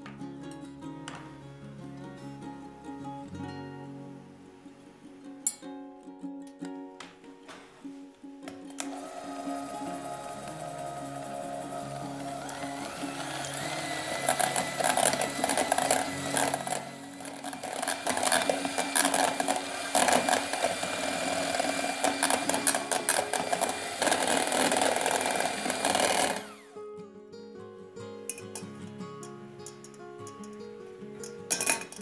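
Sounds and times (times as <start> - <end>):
electric hand mixer running: 8.8 - 26.8
beaters clattering against metal bowl: 31.3 - 32.0.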